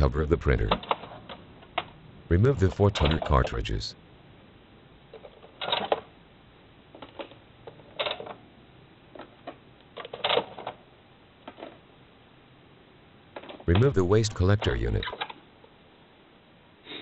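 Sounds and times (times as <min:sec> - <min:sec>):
plastic clicks and scrapes: 0:06.9 - 0:08.4.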